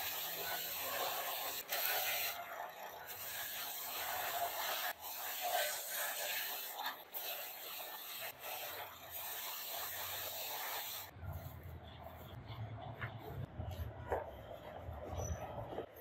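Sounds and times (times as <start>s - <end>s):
spinning clock face hissing rub: 0.0s - 11.2s.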